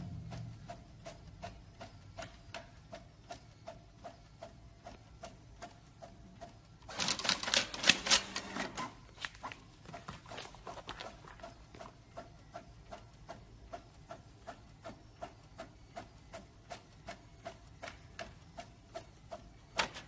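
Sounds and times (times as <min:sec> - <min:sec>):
desktop printer ticking: 0:00.0 - 0:09.1, 0:10.8 - 0:20.0
printer clicking and whirring: 0:00.0 - 0:10.1, 0:10.8 - 0:20.0.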